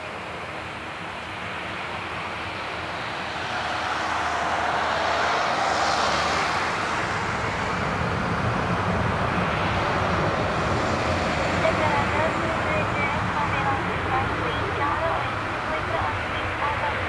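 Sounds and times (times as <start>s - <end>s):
jet engines at take-off thrust: 0.0s - 17.0s
faint rising whine: 1.7s - 8.3s.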